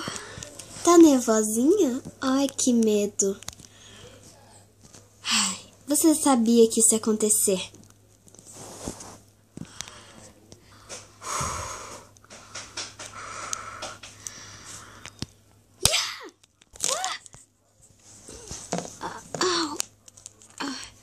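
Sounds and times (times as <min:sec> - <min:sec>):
person breathing and gasping: 0:09.6 - 0:15.1.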